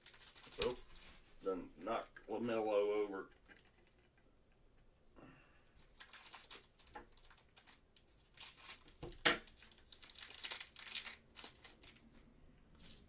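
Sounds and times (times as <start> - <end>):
foil wrapper tearing and crinkling: 0.0 - 1.2, 5.9 - 12.1.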